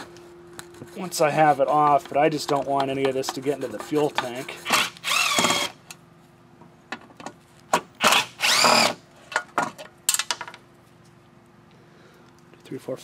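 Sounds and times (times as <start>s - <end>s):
cordless drill whining: 4.6s - 5.8s, 8.0s - 9.0s.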